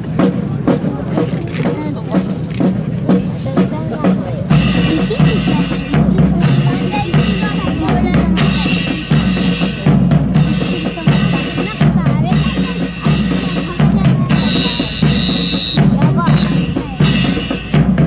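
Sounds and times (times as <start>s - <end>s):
marching drums: 0.0s - 18.0s
short high steady tone: 14.3s - 17.6s.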